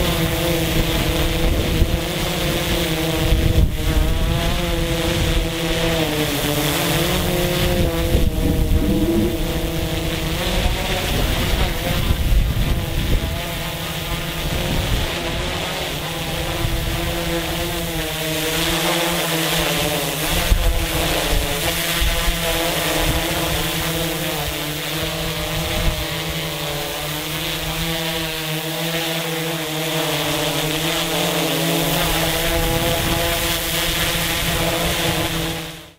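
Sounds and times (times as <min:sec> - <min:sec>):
quadcopter propellers whining: 0:00.0 - 0:35.9
wind buffeting microphone: 0:06.6 - 0:13.6.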